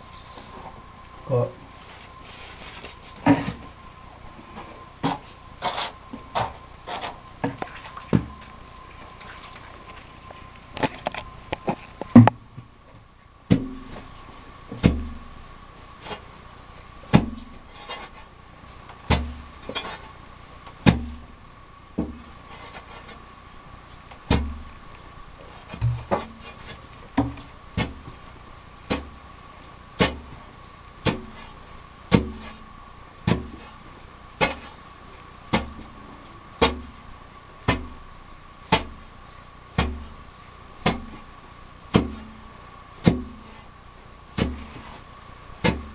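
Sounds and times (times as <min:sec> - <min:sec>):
digging tool striking wet gravel: 0:13.5 - 0:14.0, 0:14.7 - 0:15.2, 0:17.1 - 0:18.0, 0:19.0 - 0:20.0, 0:20.8 - 0:21.2, 0:24.3 - 0:24.6, 0:25.7 - 0:28.1, 0:28.9 - 0:29.2, 0:30.0 - 0:30.4, 0:31.0 - 0:31.5, 0:32.1 - 0:32.6, 0:33.2 - 0:33.7, 0:34.4 - 0:34.8, 0:35.5 - 0:35.9, 0:36.6 - 0:36.9, 0:37.7 - 0:38.0, 0:38.7 - 0:39.0, 0:39.7 - 0:40.2, 0:40.8 - 0:41.3, 0:41.9 - 0:42.4, 0:43.0 - 0:43.6, 0:44.3 - 0:45.0, 0:45.6 - 0:45.9.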